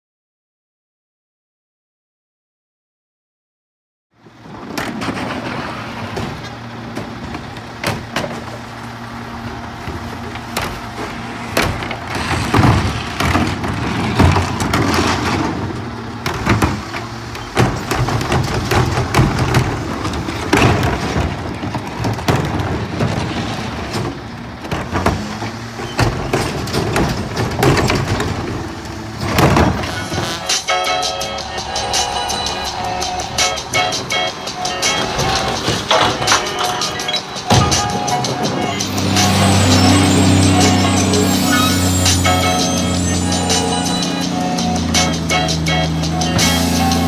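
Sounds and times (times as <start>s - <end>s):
garbage truck engine running: 4.2s - 47.0s
trash carts banging against hopper: 4.2s - 47.0s.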